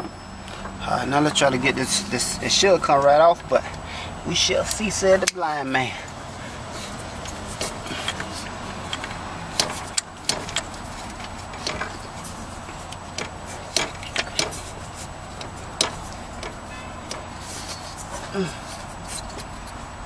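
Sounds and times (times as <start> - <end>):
metal clicks and knocks: 7.2 - 18.2.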